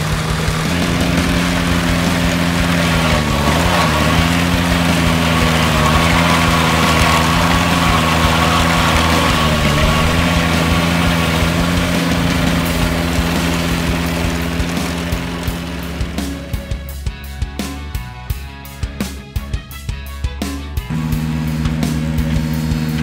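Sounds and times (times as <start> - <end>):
steady high whine: 0.0 - 17.1, 20.9 - 23.0
tractor engine running: 0.0 - 19.0, 20.8 - 23.0.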